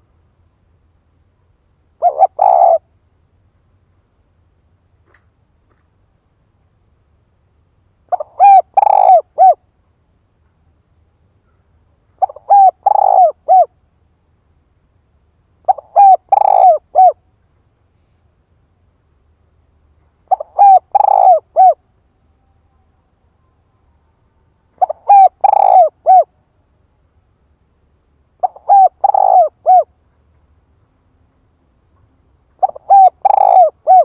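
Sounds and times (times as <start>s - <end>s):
dove cooing: 2.0s - 2.9s, 8.1s - 9.6s, 12.2s - 13.8s, 15.7s - 17.2s, 20.3s - 21.8s, 24.8s - 26.4s, 28.4s - 29.9s, 32.6s - 34.0s.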